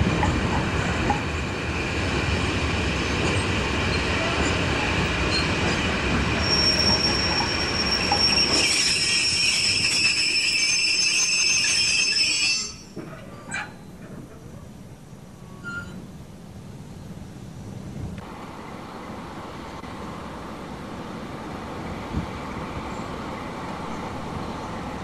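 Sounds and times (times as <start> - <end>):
freight train rumbling past: 0.0 - 13.2, 16.1 - 25.0
wheel and brake squeal: 5.3 - 5.8, 6.4 - 13.8, 15.5 - 16.1.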